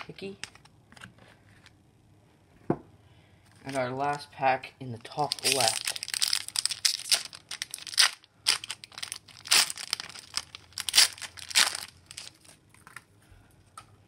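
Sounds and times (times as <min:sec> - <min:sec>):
foil wrapper tearing and crinkling: 0:05.1 - 0:13.0.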